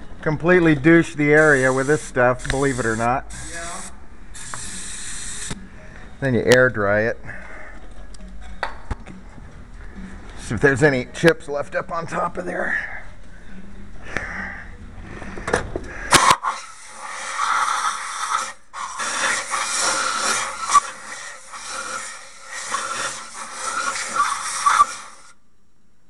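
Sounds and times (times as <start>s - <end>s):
air blow gun hissing: 1.3s - 5.6s, 16.1s - 25.4s.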